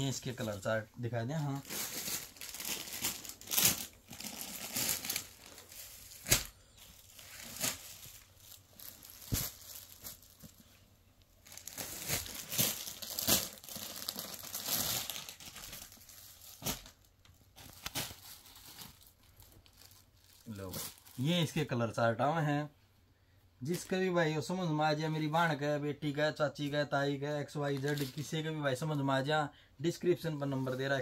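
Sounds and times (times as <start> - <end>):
fabric rustling: 0.1 - 16.9
plastic packets crinkling: 1.3 - 10.7, 11.3 - 21.4.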